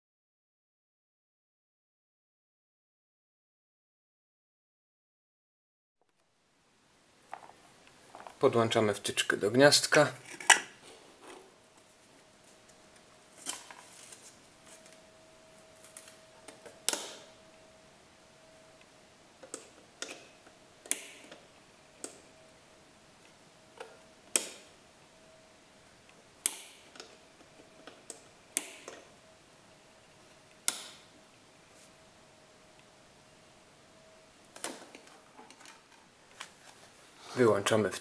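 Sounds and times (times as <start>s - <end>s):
light switch clicks: 26.4s - 26.8s, 28.1s - 29.0s, 30.6s - 31.0s.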